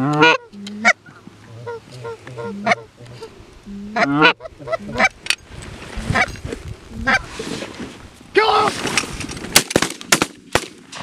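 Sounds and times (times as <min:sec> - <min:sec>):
geese honking: 0:00.0 - 0:05.2, 0:07.0 - 0:07.2
shotgun blasts: 0:09.6 - 0:11.0.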